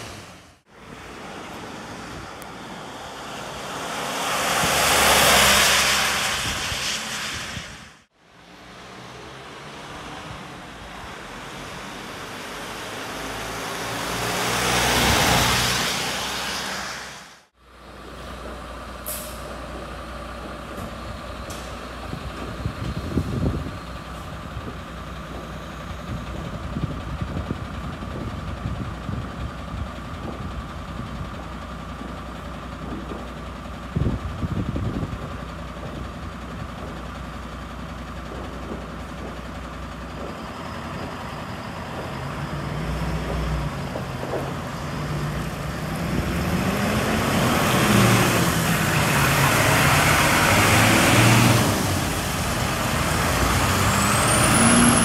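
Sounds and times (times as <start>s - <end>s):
vehicle passing on wet road: 0.0s - 17.5s, 38.6s - 55.0s
fire engines idling: 0.2s - 4.3s, 17.5s - 51.0s, 51.6s - 55.0s
air brake hisses: 19.0s - 19.5s.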